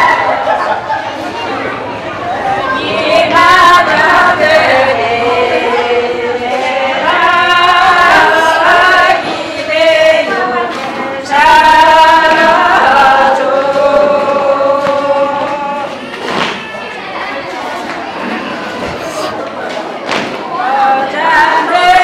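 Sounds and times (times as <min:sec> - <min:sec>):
group singing without accompaniment: 0:02.2 - 0:16.5, 0:20.4 - 0:22.0.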